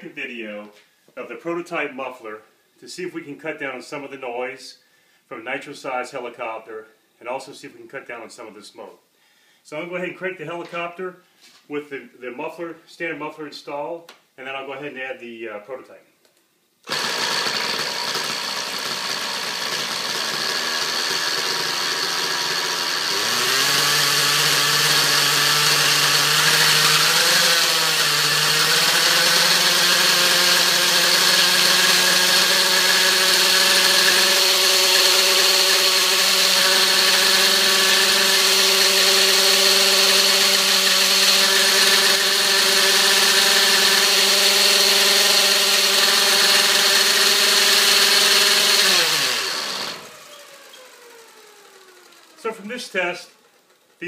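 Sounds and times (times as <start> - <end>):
model helicopter engine running: 48.9 - 53.8.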